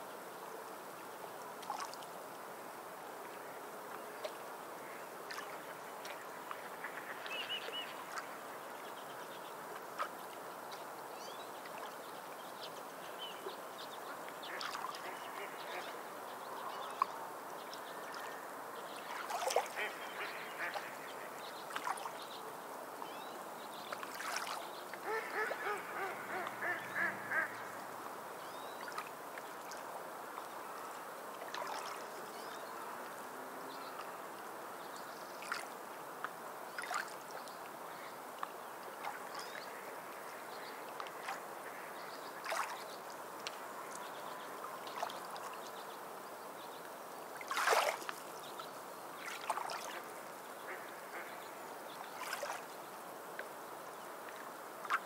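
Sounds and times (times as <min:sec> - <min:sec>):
seabirds calling: 0:25.0 - 0:27.9.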